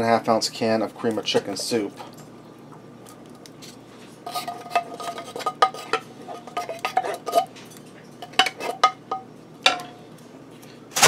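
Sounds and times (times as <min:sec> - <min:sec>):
wooden spoon scraping metal can: 0:04.3 - 0:07.5.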